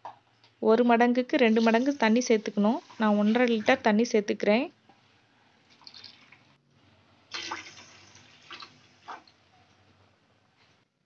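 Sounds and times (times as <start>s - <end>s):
water pouring and splashing in pot: 1.5s - 3.9s, 5.6s - 6.6s, 7.3s - 9.4s.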